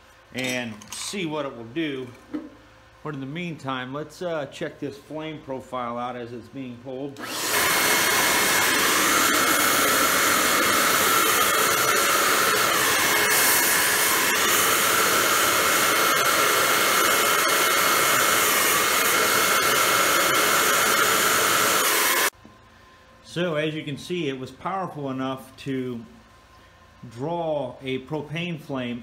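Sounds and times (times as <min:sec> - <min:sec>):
electric blower whining: 0:07.2 - 0:22.4
torch flame hissing: 0:07.2 - 0:22.4.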